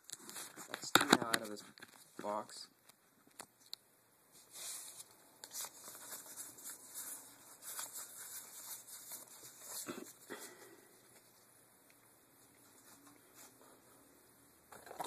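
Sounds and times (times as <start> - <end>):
cards rustling in hand: 0.1 - 2.4, 4.4 - 11.5.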